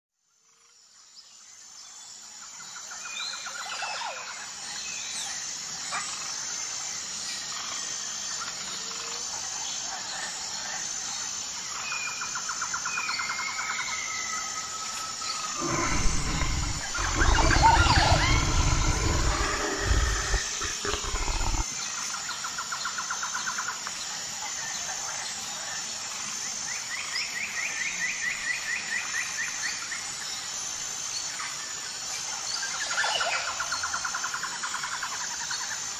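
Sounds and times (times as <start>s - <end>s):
loud low rumble: 15.6s - 21.6s
small birds chirping and trilling: 15.6s - 21.6s.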